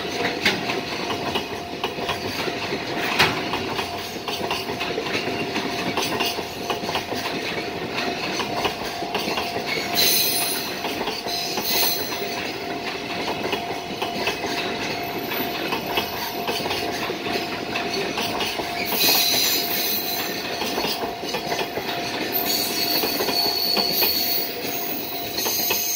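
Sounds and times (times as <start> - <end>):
freight train rumbling past: 0.0 - 25.9
wheels clicking over rail joints: 0.0 - 25.9
thin steady ringing tone: 22.3 - 25.9.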